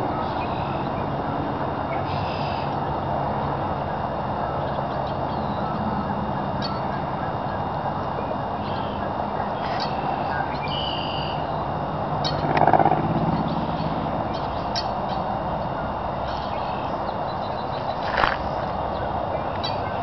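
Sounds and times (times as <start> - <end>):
steady rushing background noise: 0.0 - 20.0
high bird calls: 8.6 - 20.0.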